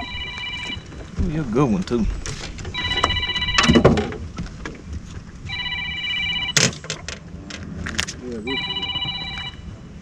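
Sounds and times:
electronic ringing tone: 0.0 - 0.9, 2.8 - 4.0, 5.5 - 6.7, 8.5 - 9.8
clatter of knocks: 2.2 - 5.6.

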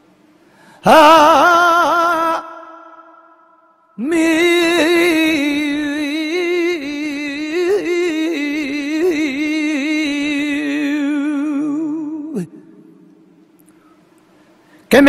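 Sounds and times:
man singing melismatic phrase: 0.8 - 3.2, 4.0 - 12.6.

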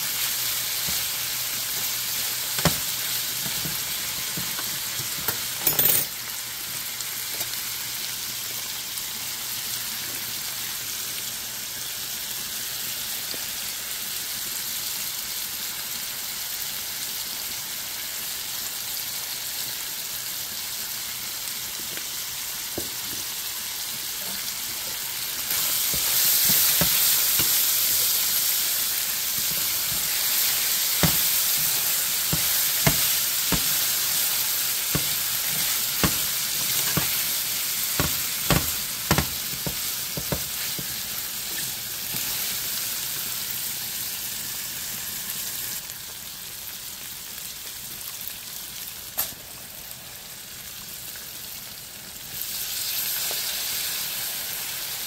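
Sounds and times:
food sizzling in a skillet: 0.0 - 55.0
utensil knocking against pan: 31.0 - 31.3, 32.3 - 33.8, 34.9 - 37.1, 38.0 - 41.0.

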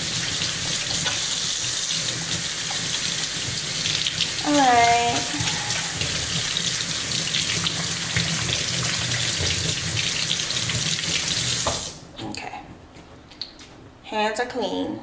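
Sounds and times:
faucet running into steel sink: 0.0 - 12.0
hands rinsed under water: 0.0 - 12.0.

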